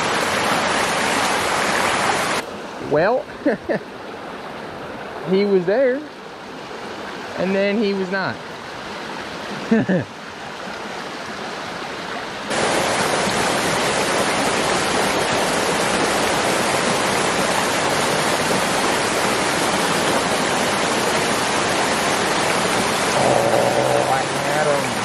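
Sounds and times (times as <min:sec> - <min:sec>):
water running over rocks: 0:00.0 - 0:02.4, 0:10.6 - 0:25.0
waterfall rushing: 0:12.5 - 0:25.0.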